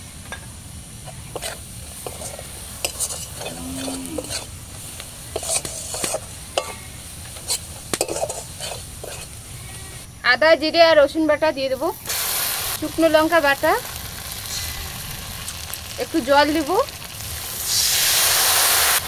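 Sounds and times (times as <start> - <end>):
low sizzle: 0.0 - 19.0
metal spatula scraping metal pan: 1.0 - 4.5, 5.3 - 9.3.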